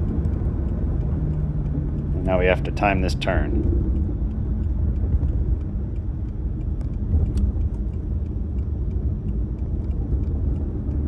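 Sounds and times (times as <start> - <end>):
car engine rumble: 0.0 - 11.0
tyre and road noise: 0.0 - 11.0
faint ticks: 3.2 - 11.0.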